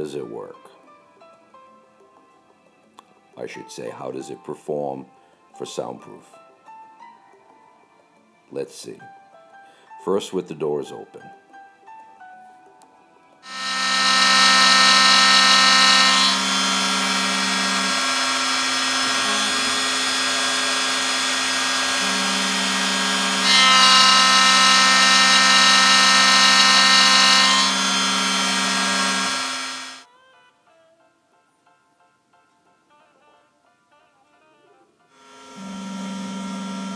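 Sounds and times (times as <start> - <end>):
cnc router cutting metal: 13.4 - 30.0, 35.2 - 36.9.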